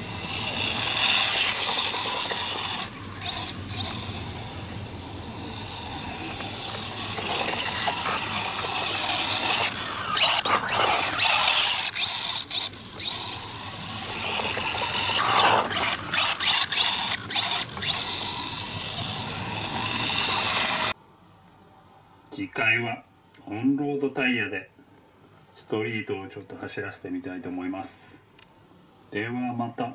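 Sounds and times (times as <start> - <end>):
high-pitched electric motor whine: 0.0 - 21.0.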